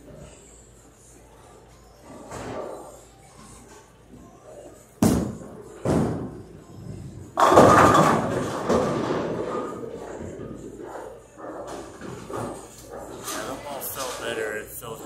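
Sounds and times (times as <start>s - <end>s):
bowling ball rolling: 4.2s - 13.4s
bowling pins crashing: 5.0s - 10.9s
bowling ball thudding on lane: 7.4s - 10.3s.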